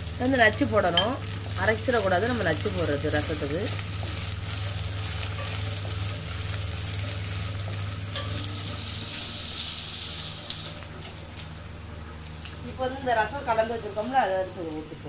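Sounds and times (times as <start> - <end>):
food sizzling in hot oil: 0.0 - 15.0.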